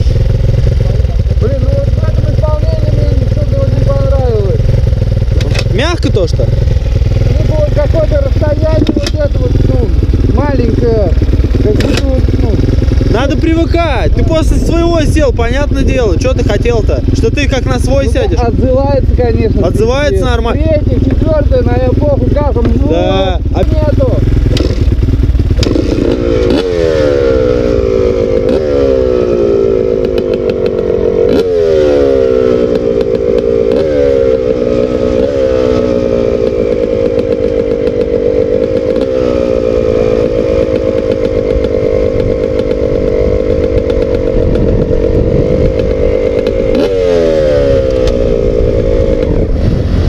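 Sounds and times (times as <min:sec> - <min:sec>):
dirt bike engine revving: 0:00.0 - 0:50.0.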